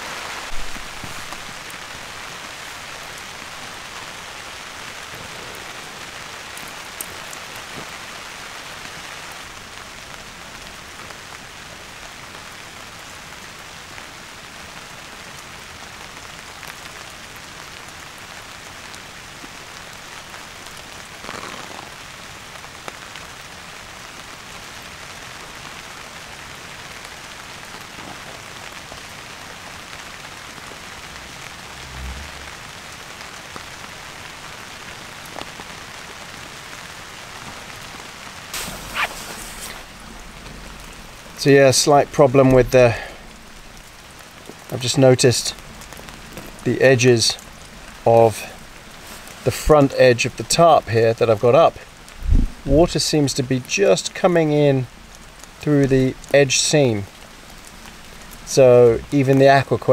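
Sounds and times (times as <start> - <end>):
steady rain falling: 0.0 - 59.9
soft low thump: 0.5 - 1.4
brief rustle: 38.6 - 39.9.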